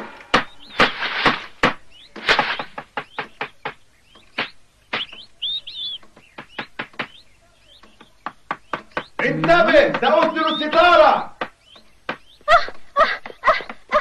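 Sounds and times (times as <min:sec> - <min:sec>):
sharp knocks: 0:00.0 - 0:05.3, 0:06.0 - 0:07.2, 0:07.8 - 0:12.8
birds chirping: 0:00.0 - 0:14.0.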